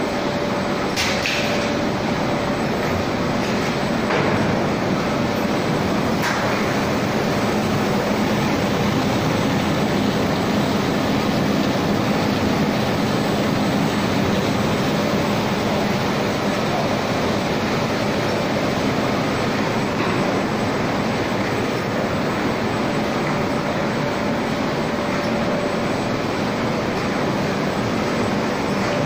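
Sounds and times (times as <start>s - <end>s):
printing press running: 0.0s - 29.0s.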